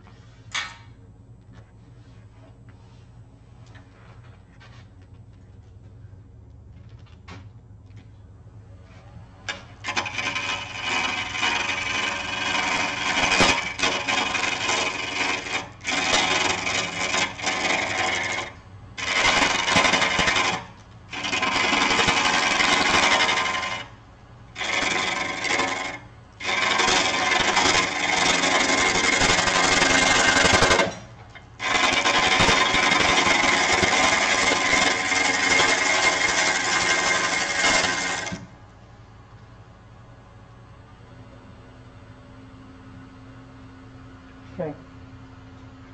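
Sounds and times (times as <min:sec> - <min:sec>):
lathe motor hum: 0:08.4 - 0:45.9
turning tool rasping on wood: 0:09.8 - 0:23.9, 0:24.6 - 0:31.0, 0:31.6 - 0:38.4.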